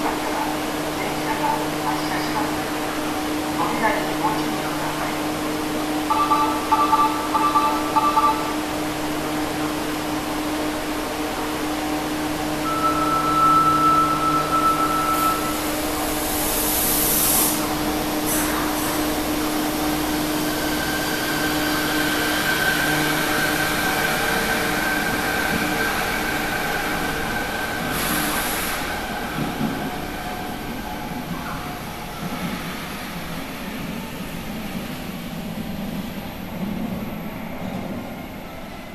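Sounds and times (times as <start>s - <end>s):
two-tone chime: 12.7s - 15.5s
train doors hissing shut: 14.5s - 19.2s, 27.9s - 29.6s.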